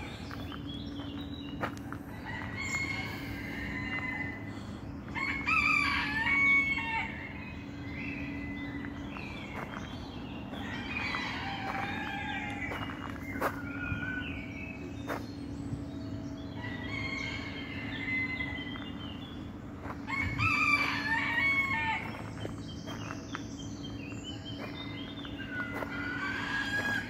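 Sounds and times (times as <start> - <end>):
birds calling: 0.0 - 27.0
low hum: 0.0 - 27.0.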